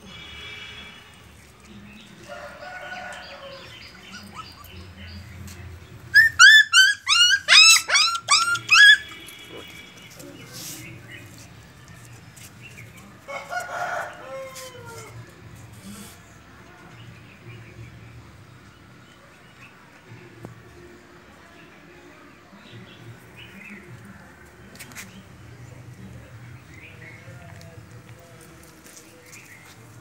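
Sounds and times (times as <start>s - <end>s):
sharp high animal calls: 6.2s - 9.7s.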